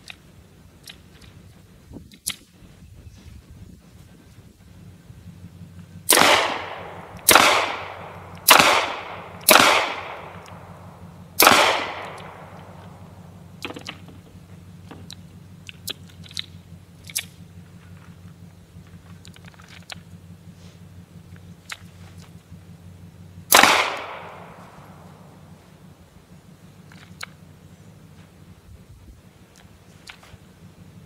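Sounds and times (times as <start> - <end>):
pistol shots with echo: 6.1 - 13.8, 23.5 - 25.5
faint clicks: 14.8 - 20.1, 29.5 - 30.4.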